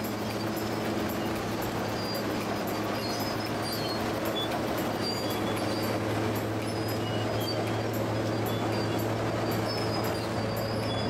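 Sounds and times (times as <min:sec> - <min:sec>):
bulldozer diesel engine droning: 0:00.0 - 0:11.0
faint high squeaks: 0:03.0 - 0:06.0, 0:06.6 - 0:11.0.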